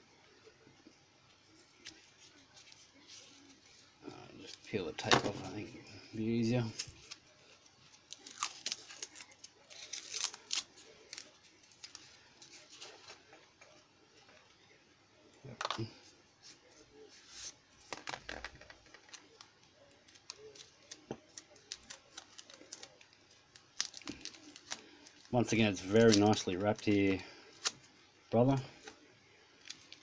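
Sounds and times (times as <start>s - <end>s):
tape being peeled: 1.3s - 5.6s, 6.6s - 13.8s, 18.6s - 28.1s, 29.6s - 30.0s.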